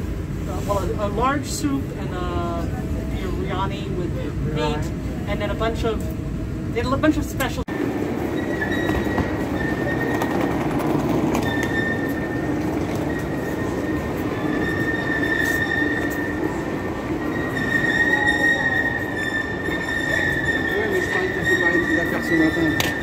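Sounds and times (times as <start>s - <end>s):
train rumbling: 0.0s - 23.0s
high wheel squeal: 7.8s - 23.0s.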